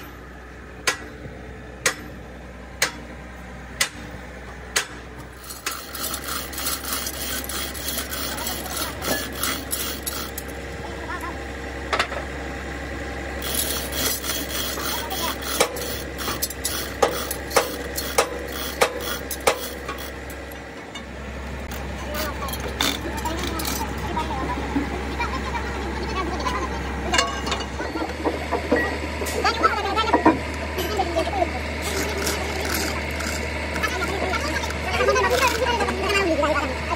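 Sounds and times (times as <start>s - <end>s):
chain rattling through hoist: 5.4s - 10.6s, 13.4s - 20.5s, 22.1s - 24.0s, 31.8s - 35.7s.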